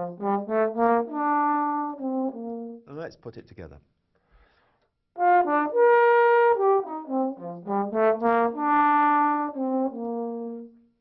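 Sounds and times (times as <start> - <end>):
solo trombone playing: 0.0 - 2.8, 5.2 - 10.9.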